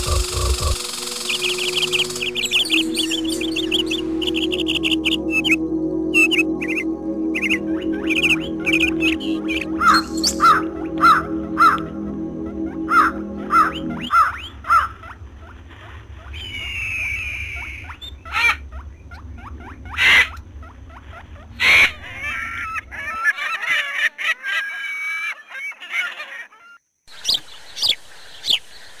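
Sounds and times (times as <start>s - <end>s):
birds calling: 0.0s - 29.0s
low steady rumble: 1.6s - 23.2s.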